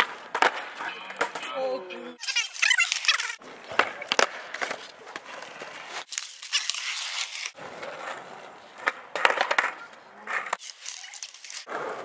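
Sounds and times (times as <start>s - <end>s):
skateboard wheels rolling on asphalt: 0.0s - 1.4s, 2.9s - 12.0s
skateboard clacking on ground: 0.0s - 1.7s, 3.5s - 6.0s, 7.6s - 12.0s.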